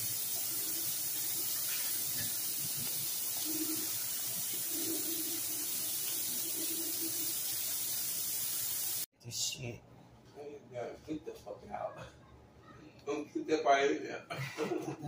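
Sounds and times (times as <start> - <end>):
meat sizzling in a skillet: 0.0 - 9.1.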